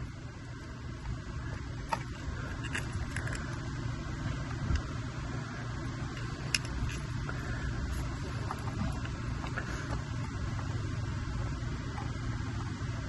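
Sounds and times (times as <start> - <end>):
wires and connectors rattling: 0.0 - 5.0, 5.8 - 10.8
steady low rumble: 0.0 - 13.0.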